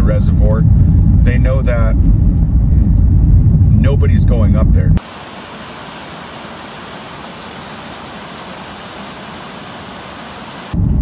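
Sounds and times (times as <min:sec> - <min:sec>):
waterfall splashing into pool: 0:05.0 - 0:10.8.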